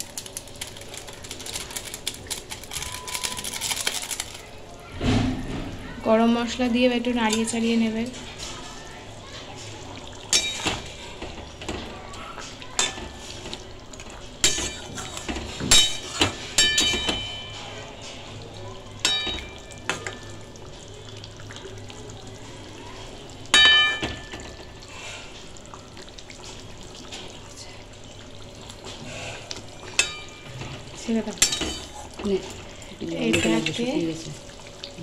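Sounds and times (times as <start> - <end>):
spatula clanking against metal pan: 15.7 - 17.6, 31.4 - 31.9.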